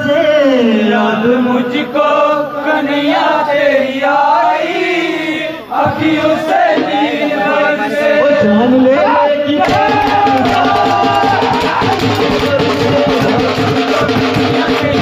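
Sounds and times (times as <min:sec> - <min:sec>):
men singing in chorus: 0:00.0 - 0:15.0
quick percussion beat: 0:09.6 - 0:15.0.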